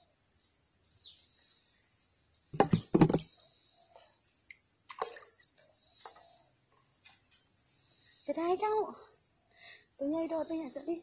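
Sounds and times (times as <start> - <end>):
fish splashing into water: 4.9 - 5.4.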